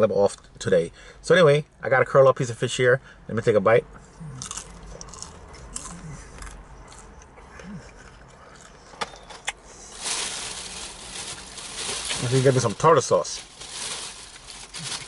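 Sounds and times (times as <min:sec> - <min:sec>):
man chewing crisp food: 0:04.0 - 0:10.0.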